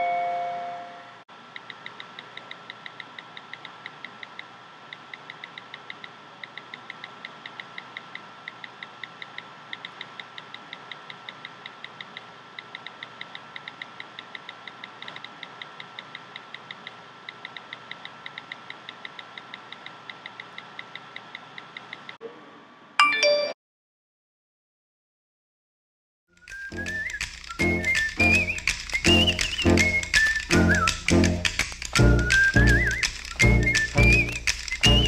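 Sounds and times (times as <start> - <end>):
faint high tone: 0.0 - 1.2
rapid even ticking: 26.4 - 35.0.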